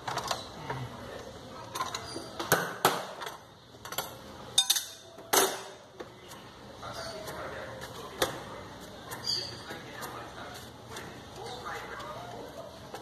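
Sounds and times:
metal wrenches clinking: 0:03.8 - 0:05.5.

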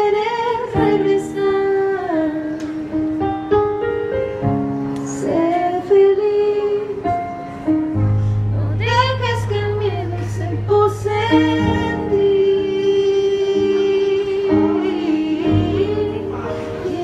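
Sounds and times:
woman singing slow song: 0:00.0 - 0:03.2, 0:05.0 - 0:07.6, 0:08.5 - 0:17.0
low bass note: 0:08.0 - 0:12.2.

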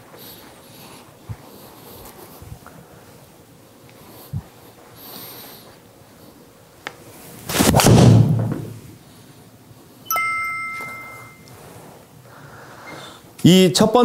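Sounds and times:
two-tone electronic ding: 0:10.1 - 0:11.5.

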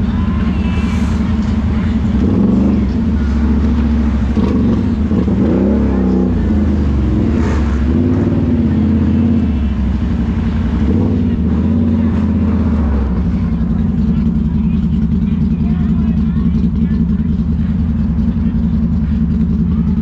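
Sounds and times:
quad bike engine revving: 0:01.4 - 0:20.0.

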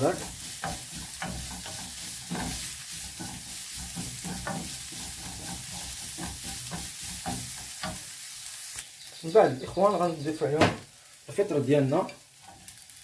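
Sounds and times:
wooden spoon scraping a pan: 0:00.0 - 0:08.7
vegetables sizzling in oil: 0:00.0 - 0:13.0.

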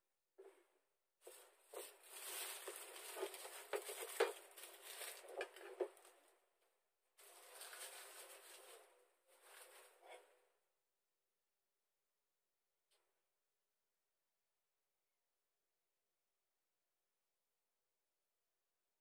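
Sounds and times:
rustling: 0:01.2 - 0:06.2, 0:07.2 - 0:10.2.

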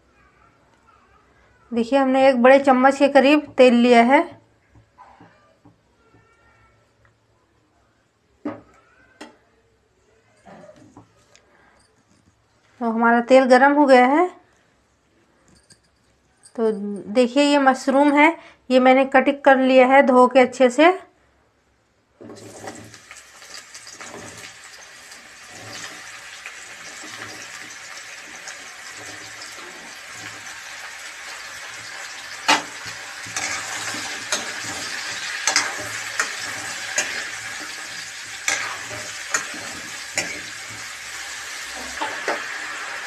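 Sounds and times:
metal spatula scraping pan: 0:22.2 - 0:43.0
mushrooms sizzling in oil: 0:22.4 - 0:43.0.

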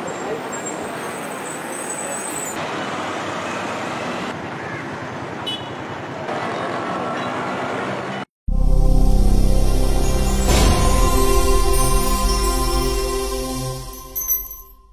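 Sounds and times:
vehicles passing on street: 0:00.0 - 0:08.3.

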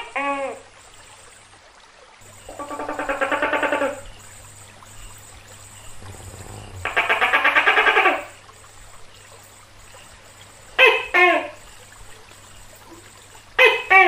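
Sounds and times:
gecko rattling churr: 0:05.0 - 0:08.4.

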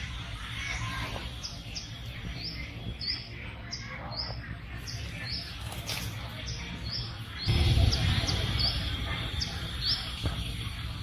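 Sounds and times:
small bird chirping: 0:00.6 - 0:10.7
low rumble: 0:07.5 - 0:10.0.

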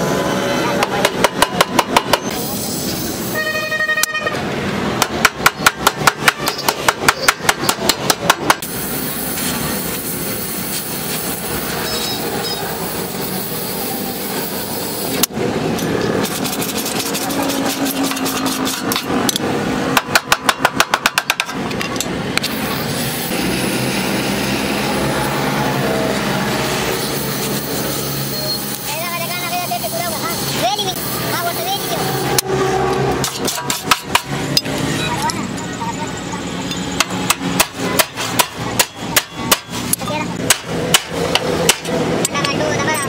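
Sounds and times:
fast sharp metal knocks: 0:00.8 - 0:02.3, 0:05.0 - 0:08.7, 0:16.2 - 0:22.5, 0:33.2 - 0:34.6, 0:36.8 - 0:42.6
car horn: 0:03.2 - 0:04.4.

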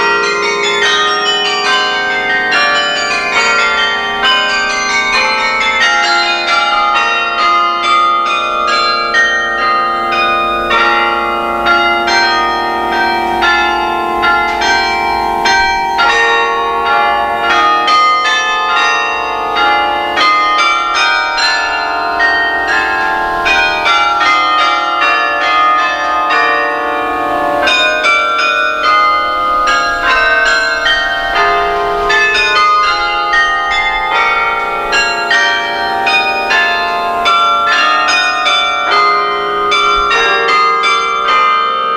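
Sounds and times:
carillon bells playing carol: 0:00.0 - 0:41.9.

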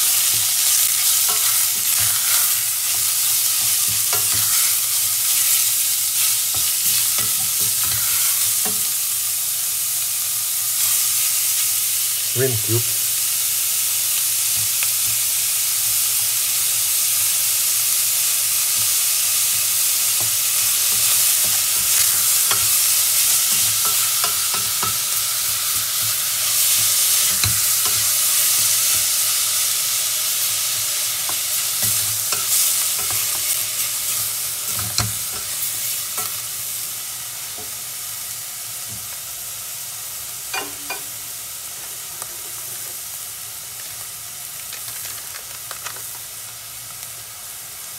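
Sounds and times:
meat sizzling in oil: 0:00.0 - 0:47.9
wooden spatula scraping a pot: 0:00.3 - 0:05.6.

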